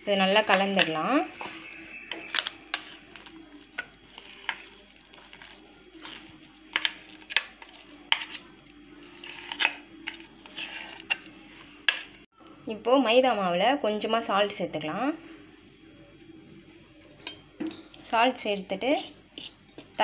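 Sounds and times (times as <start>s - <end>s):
metal spoon clinking on steel bowls: 0.0s - 12.3s, 16.9s - 18.5s.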